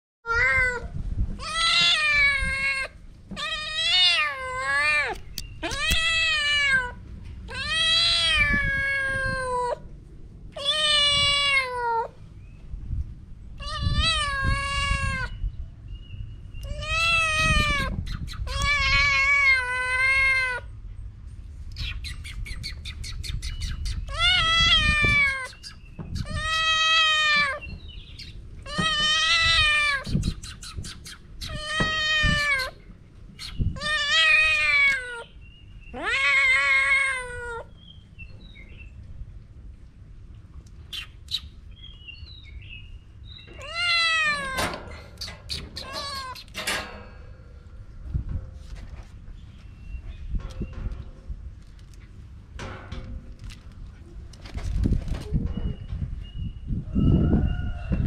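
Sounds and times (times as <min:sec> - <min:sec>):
kitten meowing: 0:00.3 - 0:09.8, 0:10.6 - 0:12.1, 0:13.6 - 0:15.4, 0:16.6 - 0:20.7, 0:24.0 - 0:27.6, 0:28.6 - 0:32.8, 0:33.7 - 0:35.3, 0:35.9 - 0:37.7, 0:43.5 - 0:44.7, 0:45.8 - 0:46.5.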